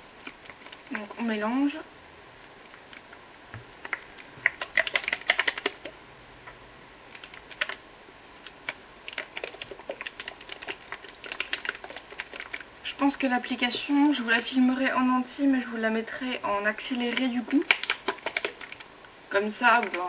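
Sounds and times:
plastic bottle shaken rattling: 3.9 - 5.9, 7.2 - 7.8, 8.6 - 12.7, 17.0 - 18.9.

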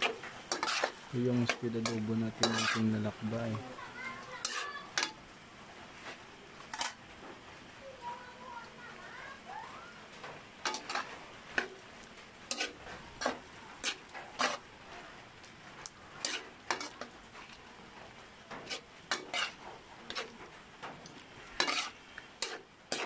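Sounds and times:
spatula scraping a wok: 0.0 - 3.6, 4.3 - 5.2, 6.0 - 7.0, 10.6 - 15.0, 15.7 - 23.0
food sizzling: 0.0 - 23.0.

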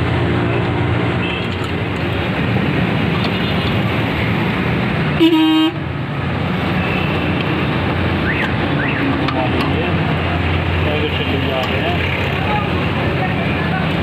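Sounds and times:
road traffic noise: 0.0 - 14.0
vehicle horn honk: 5.2 - 5.8.

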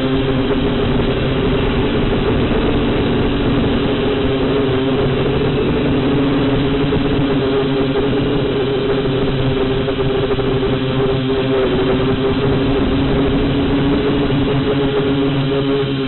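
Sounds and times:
drone motors and propellers whining: 0.0 - 16.0.

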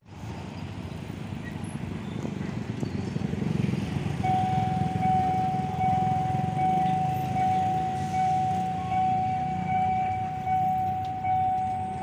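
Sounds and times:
diesel locomotive engine rumbling: 0.0 - 12.0
steady high-pitched tone: 4.2 - 12.0.

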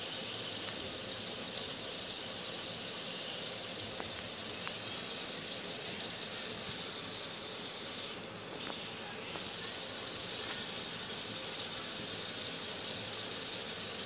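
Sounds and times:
faint ticks: 3.4 - 4.9.

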